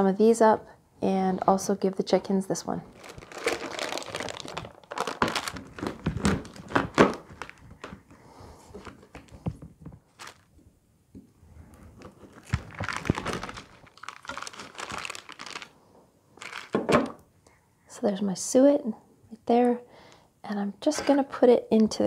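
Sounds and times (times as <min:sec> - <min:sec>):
parchment paper crinkling: 0:02.9 - 0:08.0, 0:08.8 - 0:10.5, 0:12.0 - 0:15.8, 0:16.4 - 0:16.8.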